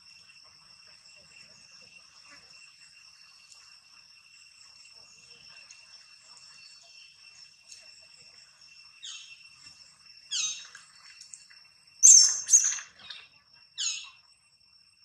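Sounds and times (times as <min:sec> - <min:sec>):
high insect drone: 0:00.0 - 0:15.0
high squawking animal calls: 0:10.3 - 0:10.7, 0:12.0 - 0:14.2.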